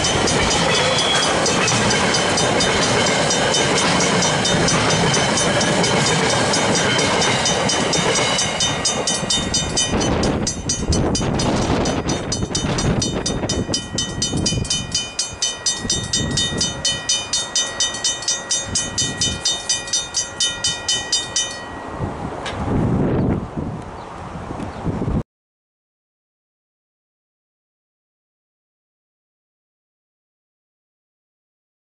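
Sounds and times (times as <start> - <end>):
crossing bells ringing: 0.0 - 22.5
freight wagons rumbling past: 0.0 - 23.2.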